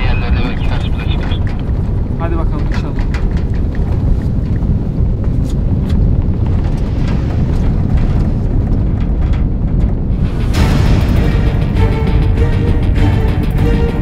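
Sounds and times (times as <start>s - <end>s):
vehicle engine and road rumble: 0.0s - 14.0s.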